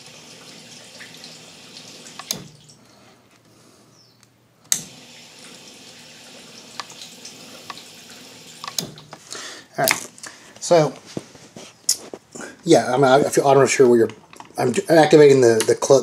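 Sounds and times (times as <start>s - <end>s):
dishwasher pump humming: 0.0s - 3.1s, 4.7s - 9.7s
relay clicks: 8.6s - 9.0s.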